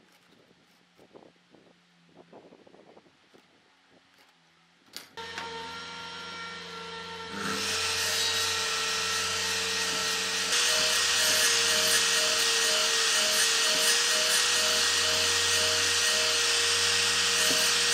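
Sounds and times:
miter saw whining: 5.2s - 17.9s
saw blade cutting wood: 5.2s - 17.9s.

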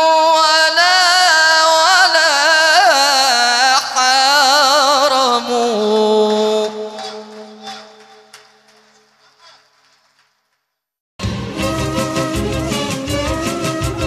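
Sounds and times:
man chanting melisma: 0.0s - 9.7s.

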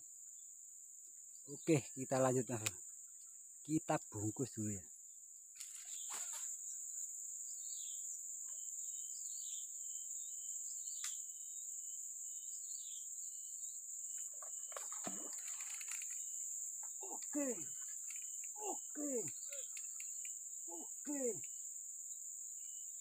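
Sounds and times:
high-pitched insect drone: 5.6s - 23.0s
bird chirps: 12.3s - 23.0s.

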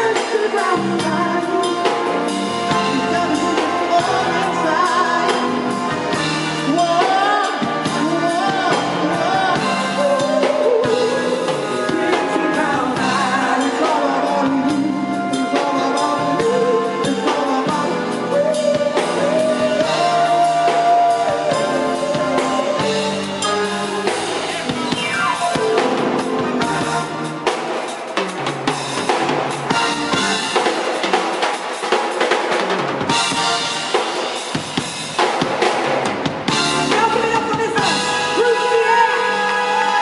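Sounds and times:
live band playing: 0.0s - 40.0s
held keyboard notes: 0.7s - 31.1s.

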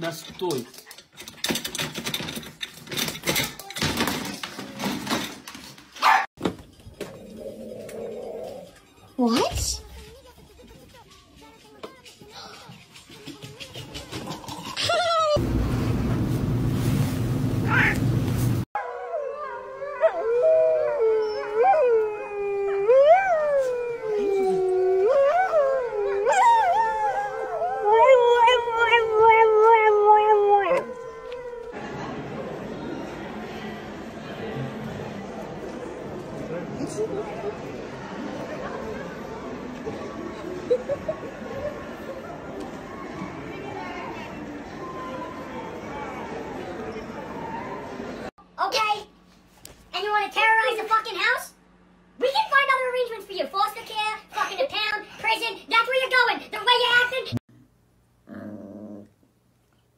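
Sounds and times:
dog howling: 18.8s - 31.8s.

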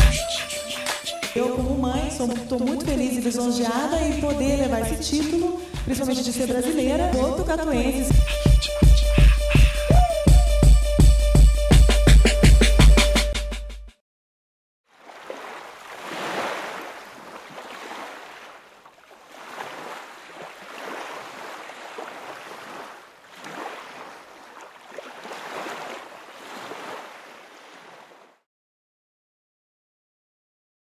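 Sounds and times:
surf washing in: 15.0s - 28.2s.

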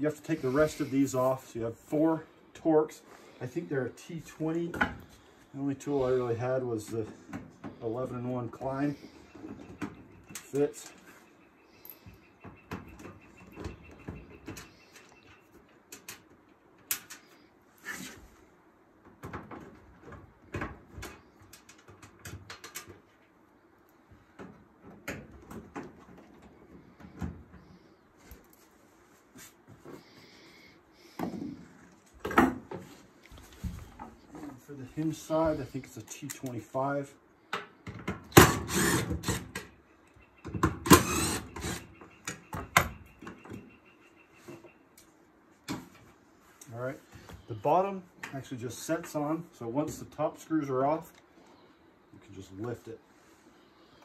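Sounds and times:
cordless drill spinning: 38.4s - 39.4s, 40.9s - 41.8s.

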